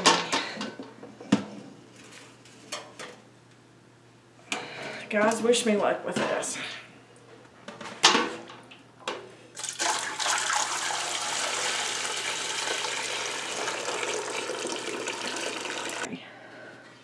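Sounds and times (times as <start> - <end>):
liquid pouring into a pot: 9.6 - 16.1.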